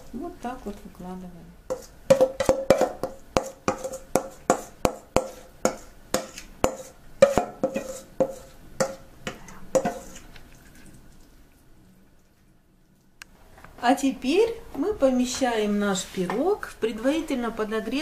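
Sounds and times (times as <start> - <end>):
glass bowl knocking on ceramic dish: 2.1 - 7.8.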